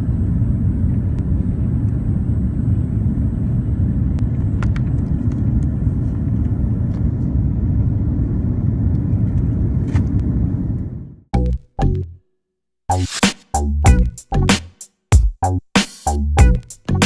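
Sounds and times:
airliner rumble inside cabin: 0.0 - 11.2.

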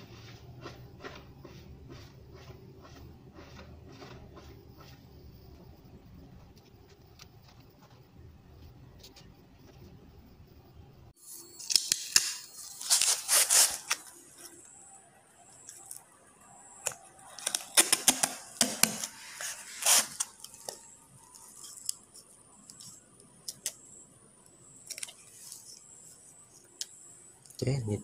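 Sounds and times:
duct tape ripping off roll: 11.6 - 14.1, 17.3 - 20.6
tape crackling and tapping: 16.8 - 23.8.

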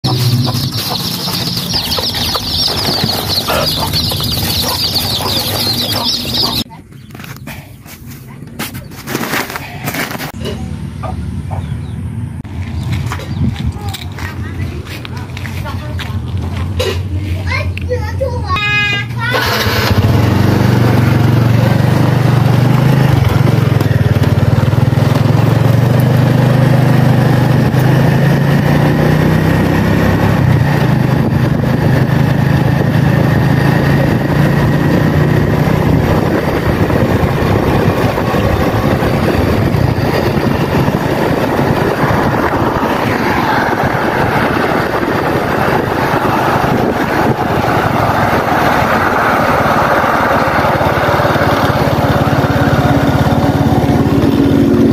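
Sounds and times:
small motorbike engine: 0.0 - 6.7, 19.2 - 54.9
wind noise on microphone: 12.8 - 16.2, 27.4 - 54.9.

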